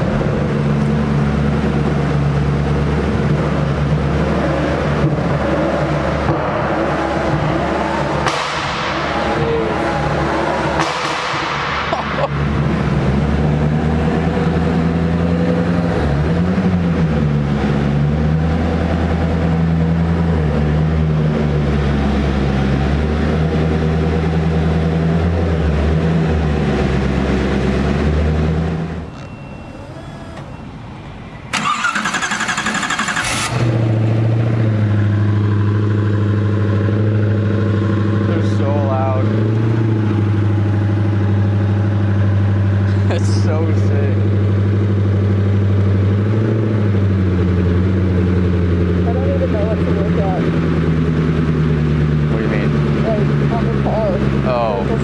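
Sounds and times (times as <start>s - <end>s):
car engine idling: 21.2s - 55.0s
engine throttle blip: 28.8s - 33.8s.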